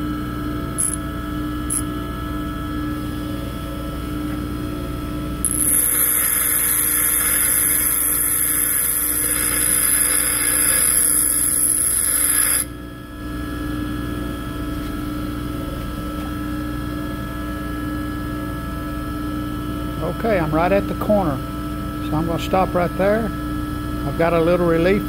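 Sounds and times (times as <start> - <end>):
grinder motor humming: 0.7 - 2.0, 5.4 - 12.8
grinder wheel grinding steel: 0.8 - 1.0, 1.7 - 1.9, 5.4 - 12.7.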